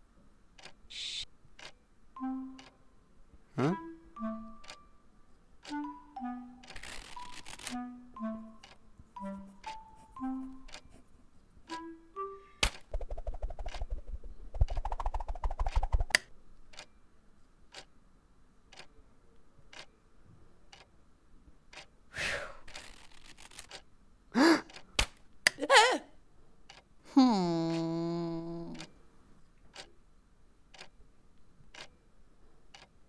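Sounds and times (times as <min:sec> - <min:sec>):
light evenly spaced ticks: 0:00.5 - 0:03.0, 0:03.7 - 0:17.0, 0:17.7 - 0:18.0, 0:18.7 - 0:20.0, 0:20.6 - 0:21.0, 0:21.7 - 0:22.0, 0:22.6 - 0:23.9, 0:24.7 - 0:24.9, 0:26.6 - 0:26.9, 0:27.5 - 0:30.0, 0:30.7 - 0:33.0.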